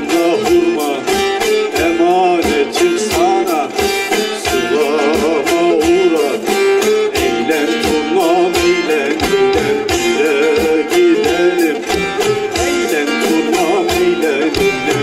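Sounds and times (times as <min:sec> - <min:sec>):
long-necked lute folk melody: 0:00.0 - 0:15.0.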